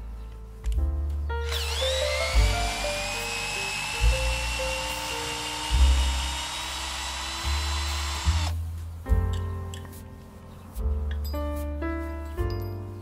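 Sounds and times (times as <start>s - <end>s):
drill boring into wood: 1.4s - 8.5s.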